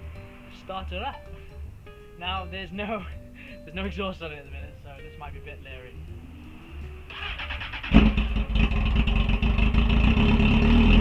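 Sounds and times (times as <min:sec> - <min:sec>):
engine starter turning over: 0:07.1 - 0:10.0
motorcycle engine running loud: 0:07.9 - 0:11.0.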